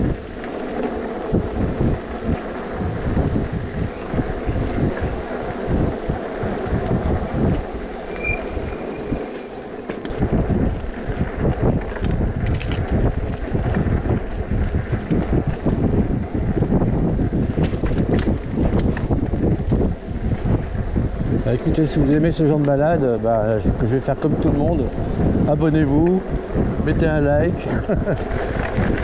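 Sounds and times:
wind buffeting microphone: 0:00.0 - 0:29.0
brief high chirp: 0:08.1 - 0:08.5.

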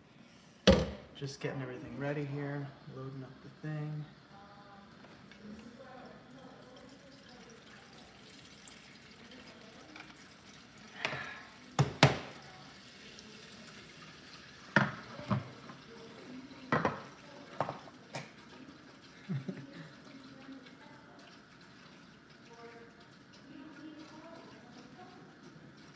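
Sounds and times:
tap running into pot: 0:11.0 - 0:12.4, 0:14.6 - 0:15.8, 0:16.7 - 0:18.4.

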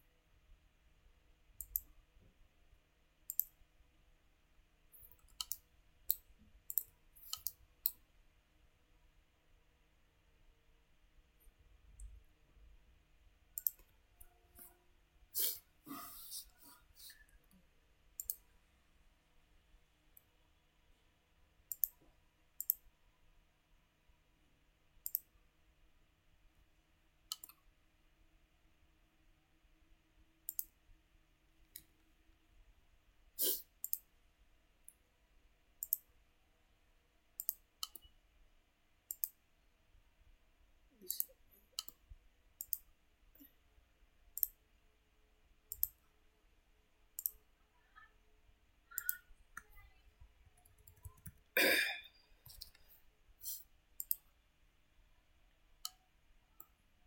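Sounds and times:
computer mouse clicking: 0:01.6 - 0:01.9, 0:03.3 - 0:03.6, 0:05.0 - 0:08.0, 0:13.6 - 0:13.9, 0:18.2 - 0:18.4, 0:21.7 - 0:22.8, 0:25.0 - 0:25.3, 0:27.3 - 0:27.6, 0:30.4 - 0:30.8, 0:33.8 - 0:34.1, 0:35.8 - 0:36.1, 0:37.4 - 0:38.1, 0:39.1 - 0:39.4, 0:41.1 - 0:42.0, 0:42.6 - 0:42.9, 0:44.4 - 0:44.6, 0:45.7 - 0:46.0, 0:47.2 - 0:47.4, 0:48.9 - 0:49.8, 0:50.5 - 0:51.5, 0:53.5 - 0:54.3.

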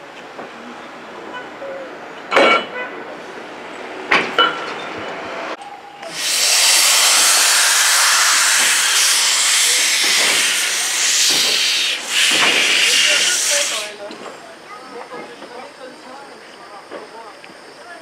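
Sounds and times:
steam hissing from locomotive: 0:06.0 - 0:14.2.

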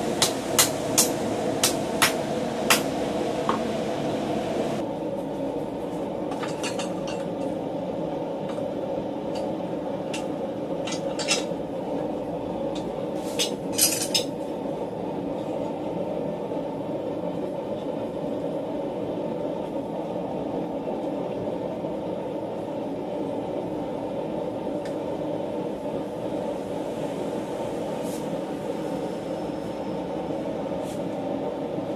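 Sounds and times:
steady low roar: 0:00.0 - 0:04.8.

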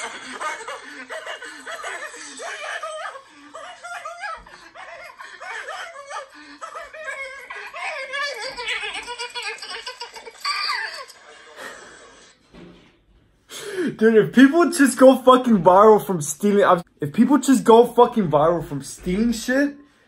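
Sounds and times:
man laughing: 0:00.0 - 0:12.1.

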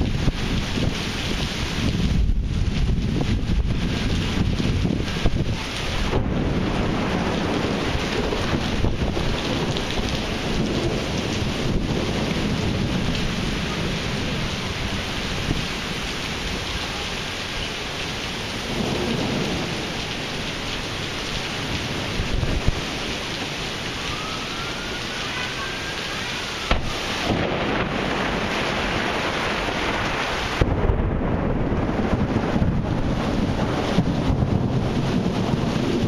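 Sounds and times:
deep thunder rumble: 0:00.0 - 0:16.9, 0:18.6 - 0:24.8, 0:26.6 - 0:36.0
heavy rain pouring on pavement: 0:00.0 - 0:36.0
sharp thunder crack: 0:01.9 - 0:09.8, 0:26.6 - 0:36.0.

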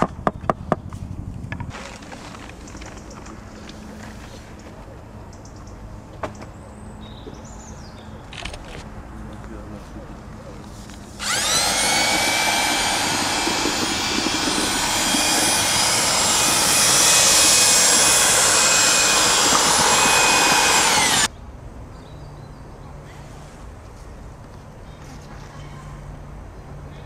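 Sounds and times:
power tool motor whining: 0:11.2 - 0:21.3.

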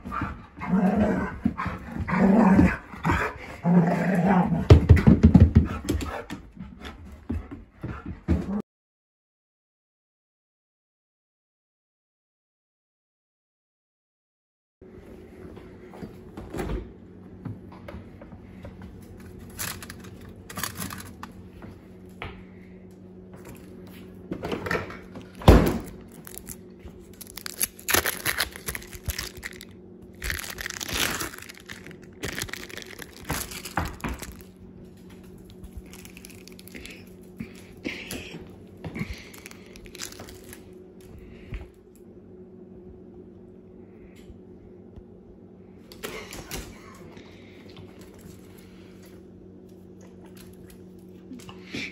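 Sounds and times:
steady low hum: 0:14.8 - 0:51.9
plastic wrapper crinkling: 0:19.5 - 0:21.3, 0:25.9 - 0:34.5, 0:35.8 - 0:37.3, 0:39.3 - 0:40.7.

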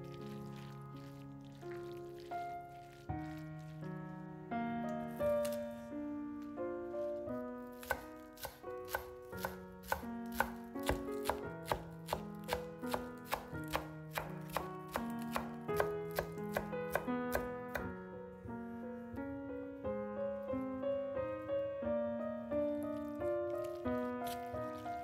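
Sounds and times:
soft piano music: 0:00.0 - 0:25.0
knife chopping on wooden board: 0:07.8 - 0:17.9.

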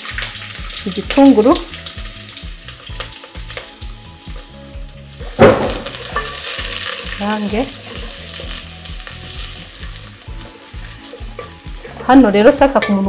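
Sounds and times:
onions sizzling in hot oil: 0:00.0 - 0:13.0
loud knock: 0:05.4 - 0:06.0
wooden spoon stirring pot: 0:09.4 - 0:13.0.

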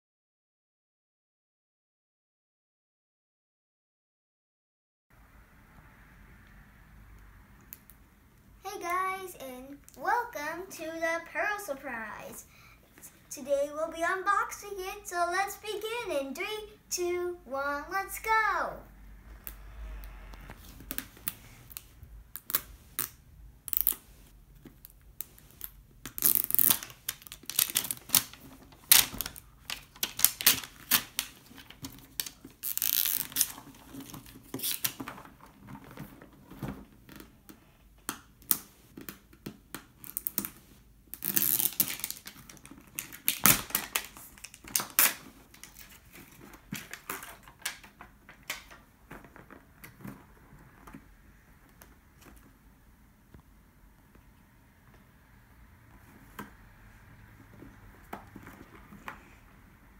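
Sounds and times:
plastic packaging crackling: 0:20.9 - 0:36.6, 0:40.0 - 0:48.8
paper seal tearing: 0:32.3 - 0:33.5, 0:41.2 - 0:42.3.

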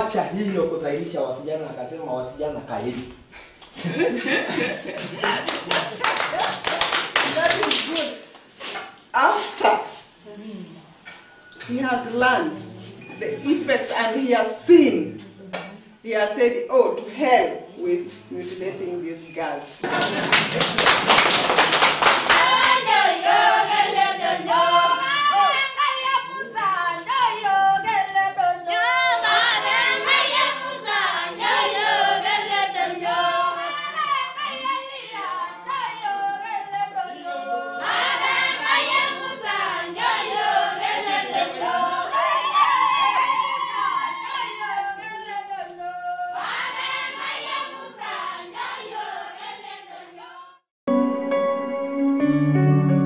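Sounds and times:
women singing together: 0:22.1 - 0:50.6
soft instrumental music: 0:50.9 - 0:53.0.

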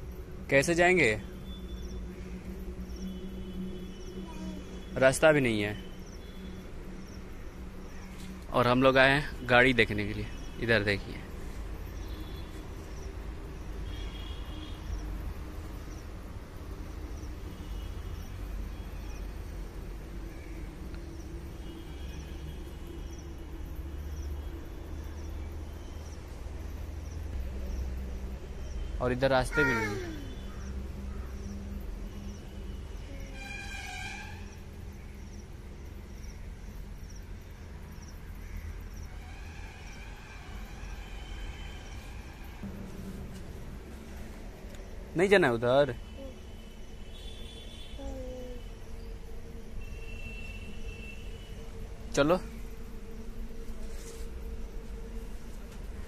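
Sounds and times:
steady low rumble: 0:42.5 - 0:47.1.

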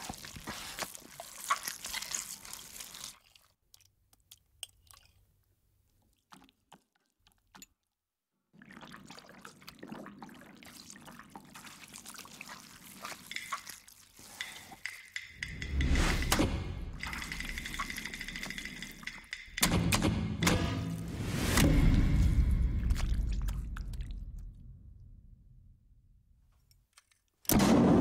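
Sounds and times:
hands kneading wet minced meat: 0:00.0 - 0:07.6, 0:08.8 - 0:15.4.

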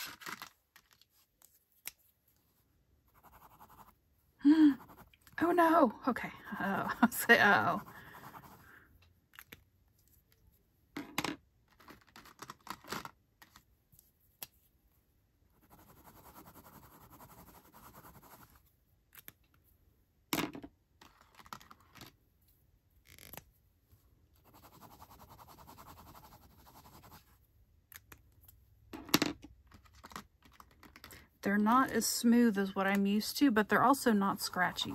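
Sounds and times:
pen scribbling on paper: 0:03.1 - 0:03.9, 0:04.7 - 0:05.2, 0:06.5 - 0:08.6, 0:15.6 - 0:18.6, 0:24.4 - 0:27.2, 0:34.1 - 0:34.9
pens being set down: 0:29.0 - 0:29.5.

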